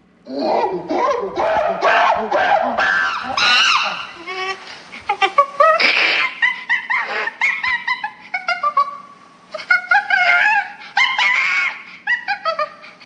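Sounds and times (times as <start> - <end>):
monkey chattering calls: 0.9 - 4.4.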